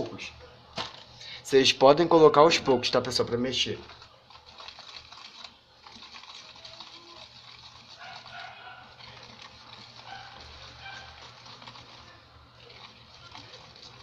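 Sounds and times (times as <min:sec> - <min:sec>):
whisk scraping plastic tub: 0:03.7 - 0:14.0.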